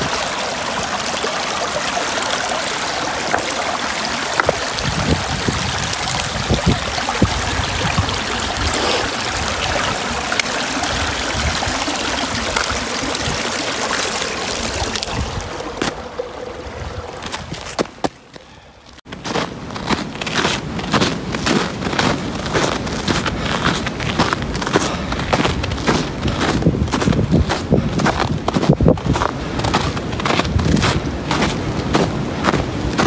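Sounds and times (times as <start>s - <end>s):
stream trickling over stones: 0.0s - 19.0s
boots stepping on rocks: 4.3s - 5.1s, 17.2s - 32.7s.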